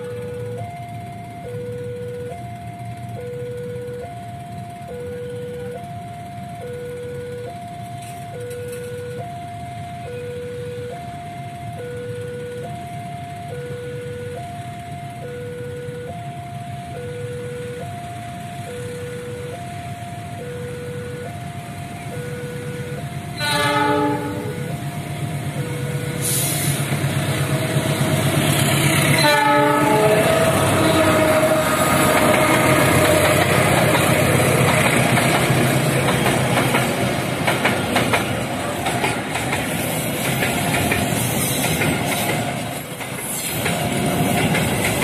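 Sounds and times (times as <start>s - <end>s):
level-crossing alarm two tones: 0.0s - 34.7s
passing diesel train rumble: 0.0s - 45.0s
locomotive horn: 23.3s - 24.8s, 26.1s - 34.7s.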